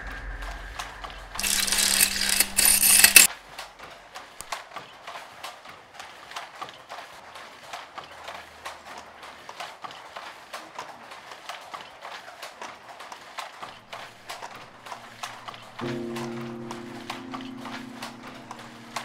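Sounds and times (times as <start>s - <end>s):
wooden handloom clacking: 1.4s - 3.3s.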